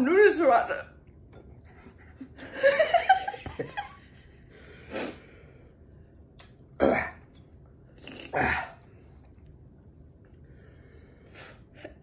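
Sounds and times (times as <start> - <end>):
person clearing throat: 6.8 - 7.3
person coughing: 6.8 - 7.3.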